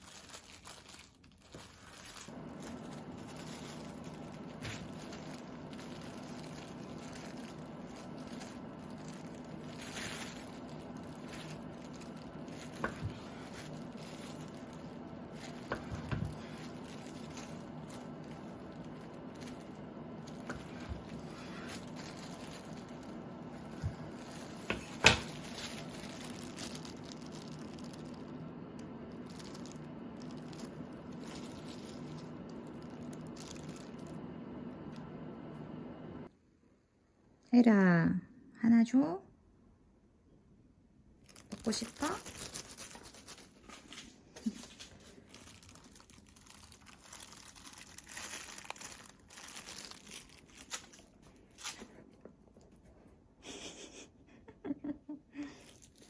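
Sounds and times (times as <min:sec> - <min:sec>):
gloved hands squishing meat: 0:00.0 - 0:35.2, 0:41.2 - 0:52.9
steady low hum: 0:00.1 - 0:38.6.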